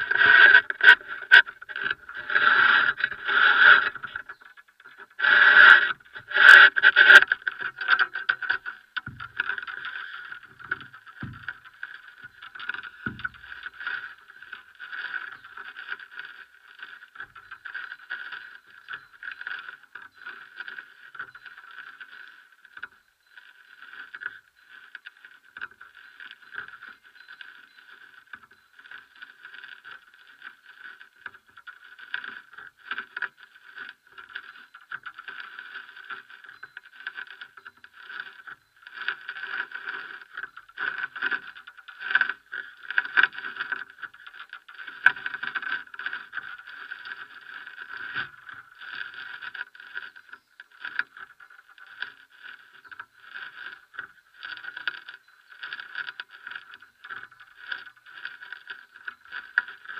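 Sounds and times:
microphone handling noise: 0:09.0 - 0:09.8, 0:10.5 - 0:11.8.

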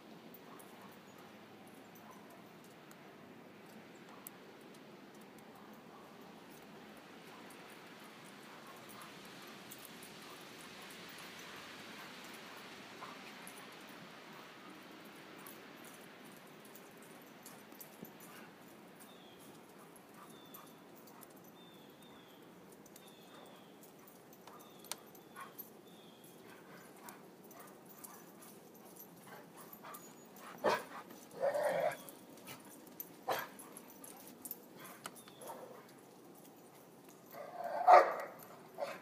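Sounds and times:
dog barking: 0:30.5 - 0:32.0, 0:33.3 - 0:33.6, 0:37.4 - 0:39.0.

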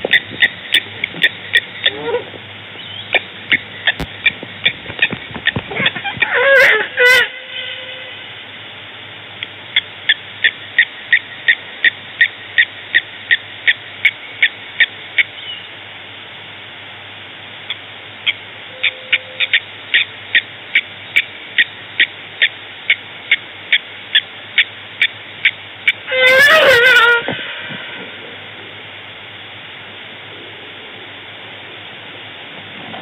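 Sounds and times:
animal calling with high notes: 0:00.1 - 0:05.1, 0:05.7 - 0:08.2, 0:17.7 - 0:28.2.

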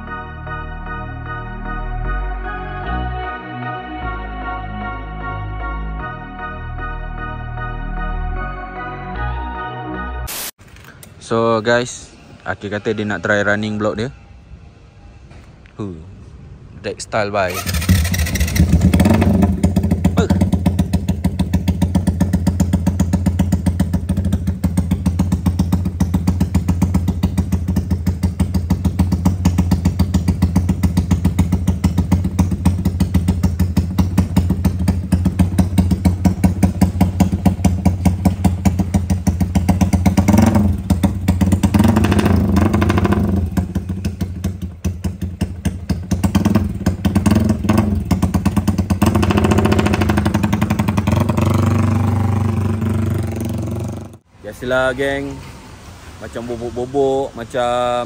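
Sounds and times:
motorcycle engine idling: 0:17.5 - 0:54.3
motorcycle throttle blips: 0:17.5 - 0:54.3.

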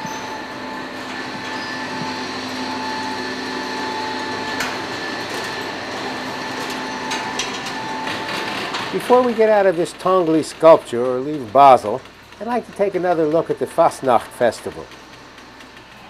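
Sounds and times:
mechanical whir of motors: 0:00.0 - 0:16.0
clicks and clanks: 0:04.2 - 0:16.0.

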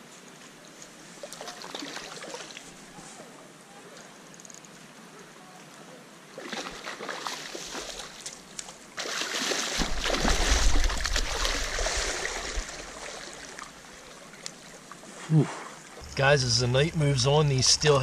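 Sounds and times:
flowing water hiss: 0:06.3 - 0:18.0
fish splashing at water surface: 0:09.0 - 0:13.7.

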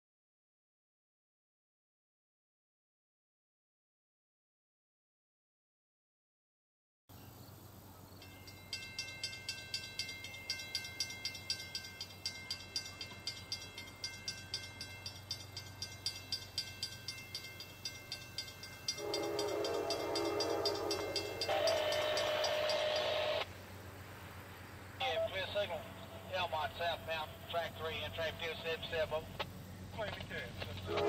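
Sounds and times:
bell ringing: 0:08.2 - 0:23.5
train horn: 0:19.0 - 0:23.4.

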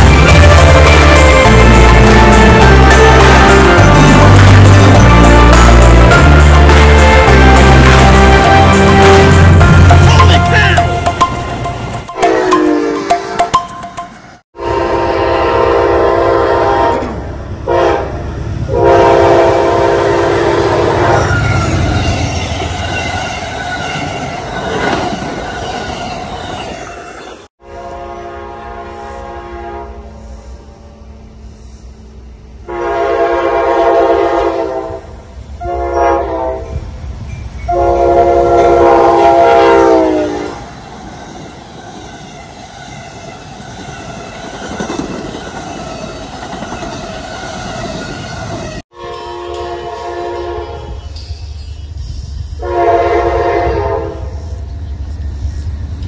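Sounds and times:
diesel locomotive horn blasts: 0:00.0 - 0:11.0, 0:12.0 - 0:13.6, 0:14.6 - 0:22.2, 0:27.6 - 0:31.1, 0:32.6 - 0:36.8, 0:37.7 - 0:40.7, 0:48.9 - 0:51.1, 0:52.6 - 0:54.5.

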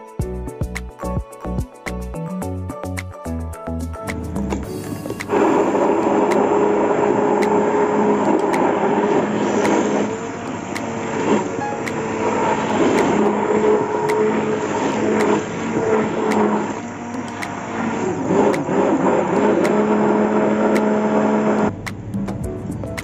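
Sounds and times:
stick blender motor whine: 0:05.0 - 0:21.7
liquid churning: 0:05.2 - 0:21.7.

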